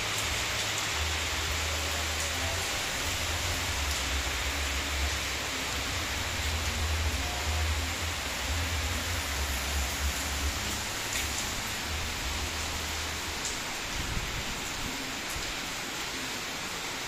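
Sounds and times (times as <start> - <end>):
heavy rain hissing: 0.0 - 17.0.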